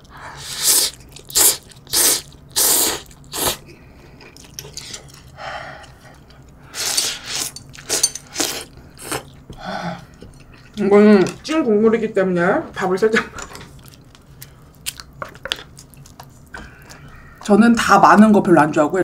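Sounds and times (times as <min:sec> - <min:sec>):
person slurping noodles: 0:00.3 - 0:03.6
person chewing: 0:00.4 - 0:11.4, 0:13.7 - 0:17.5.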